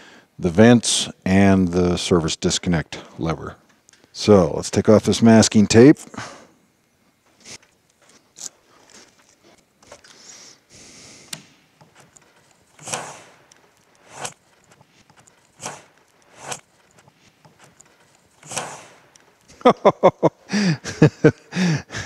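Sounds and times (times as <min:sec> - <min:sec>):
lever being pulled out: 0:11.3 - 0:19.3
masking tape peeling: 0:11.8 - 0:19.5.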